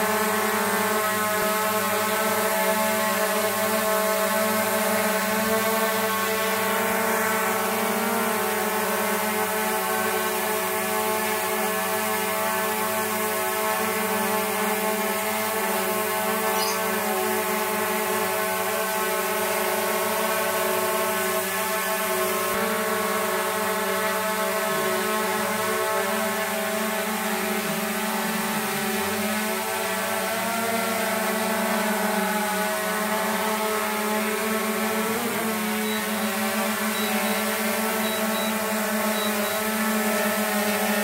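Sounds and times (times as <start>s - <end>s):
drone propellers whining: 0.0s - 41.0s.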